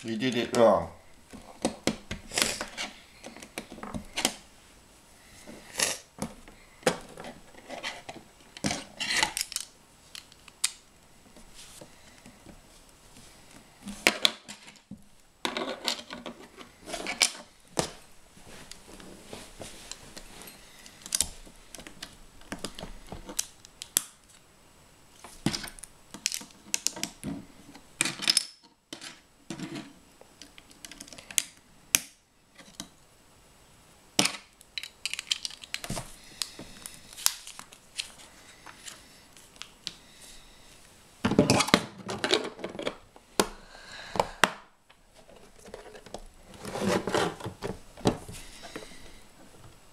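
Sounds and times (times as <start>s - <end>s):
plastic bricks clicking and clattering: 8.6s - 10.8s, 34.2s - 36.0s.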